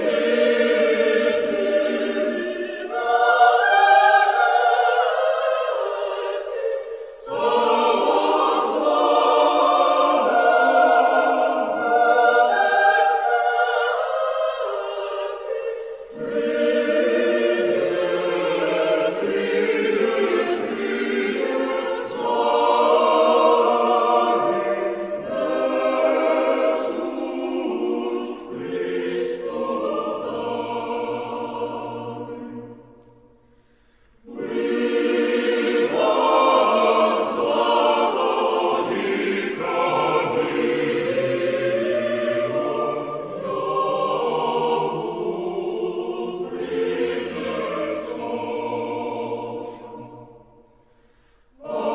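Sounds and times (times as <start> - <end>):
choir singing: 0.0 - 51.9.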